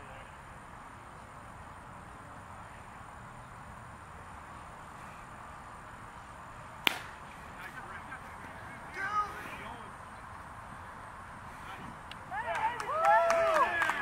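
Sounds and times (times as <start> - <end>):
outdoor background noise: 0.0 - 14.0
wooden bat hitting ball: 6.8 - 7.3.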